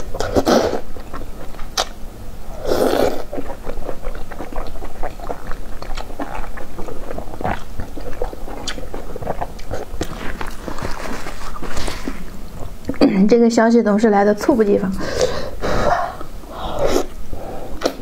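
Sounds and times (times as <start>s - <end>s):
wet chewing smacks and clicks: 0.0s - 2.0s, 3.1s - 13.0s, 17.8s - 18.0s.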